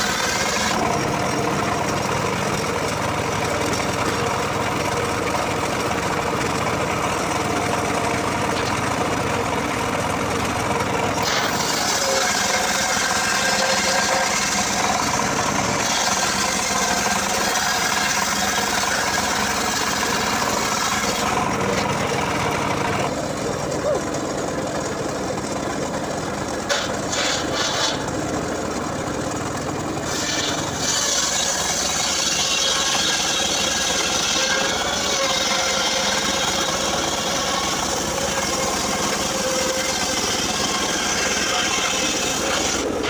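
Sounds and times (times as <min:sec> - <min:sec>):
saw blade ripping through log: 0:00.0 - 0:00.8, 0:11.1 - 0:21.9, 0:26.6 - 0:28.2, 0:30.0 - 0:43.0
engine running: 0:00.0 - 0:43.0.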